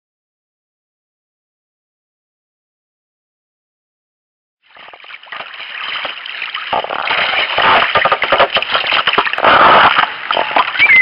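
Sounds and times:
rough crackle: 4.7 - 11.0
water rushing and splashing: 4.7 - 11.0.

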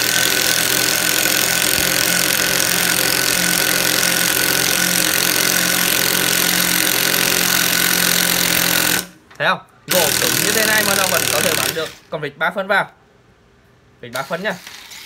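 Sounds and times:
cordless drill whining: 0.0 - 9.2, 9.9 - 12.0.

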